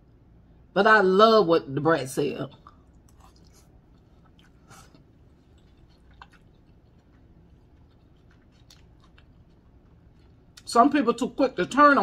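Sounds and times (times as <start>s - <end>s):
faint chewing: 2.4s - 10.7s.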